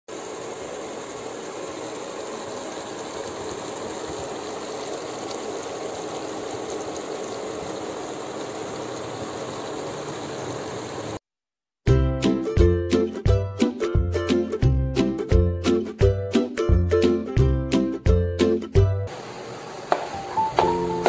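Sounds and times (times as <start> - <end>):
sauce simmering in a frying pan: 0.1 - 11.2.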